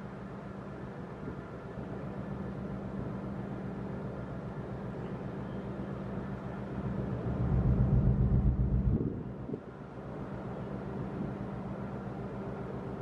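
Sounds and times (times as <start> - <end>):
ship engine drone: 0.0 - 13.0
wind noise on microphone: 7.3 - 9.7.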